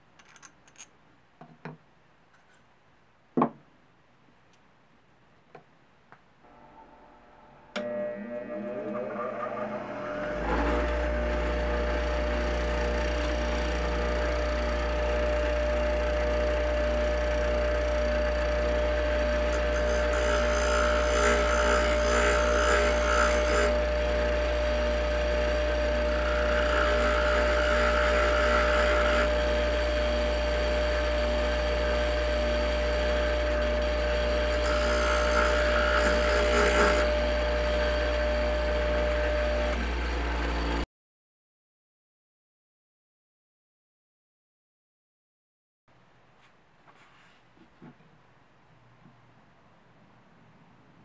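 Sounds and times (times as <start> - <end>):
bench grinder humming: 7.7 - 40.8.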